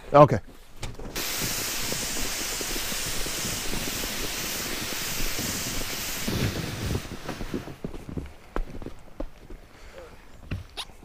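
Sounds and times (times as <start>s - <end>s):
sled sliding over snow: 1.1s - 9.0s.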